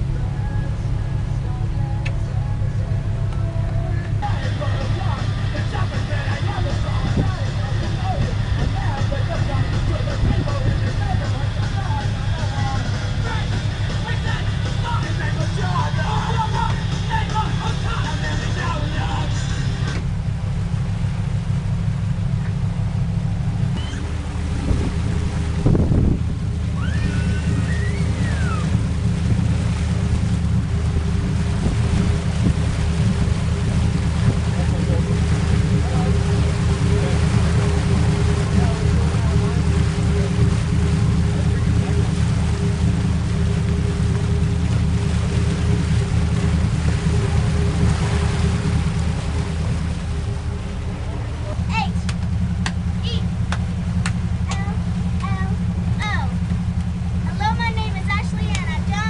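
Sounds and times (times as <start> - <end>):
motorboat engine hum: 0.0 - 59.0
water wash: 0.0 - 59.0
wind buffeting microphone: 5.0 - 11.9, 23.2 - 59.0
high gliding whistle-like tone: 26.8 - 28.7.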